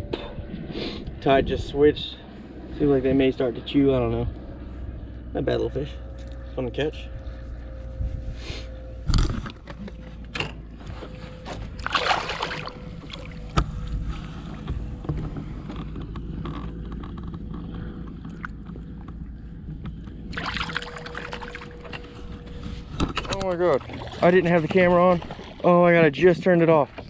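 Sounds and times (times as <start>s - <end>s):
water splashing beside boat: 11.5s - 15.6s, 20.3s - 22.4s, 23.1s - 27.0s.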